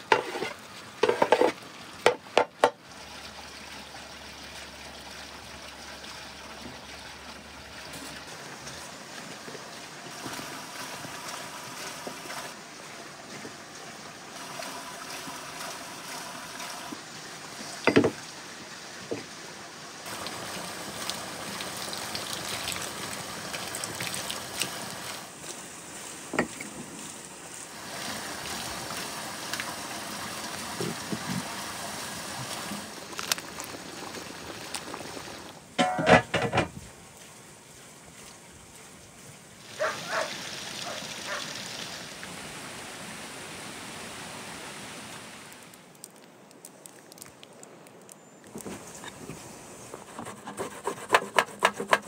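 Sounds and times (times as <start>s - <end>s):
food sizzling in a pan: 0.0s - 2.2s.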